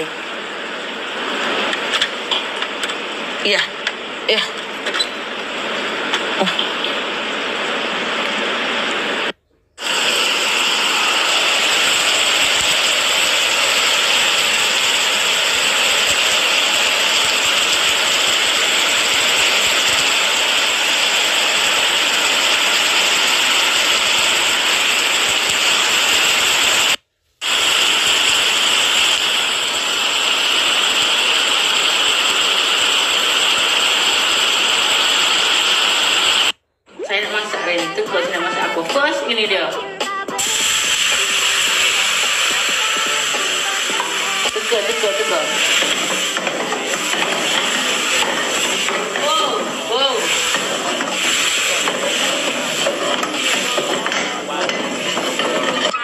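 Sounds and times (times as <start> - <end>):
heavy rain on water and foliage: 9.8 - 36.5, 40.4 - 53.9.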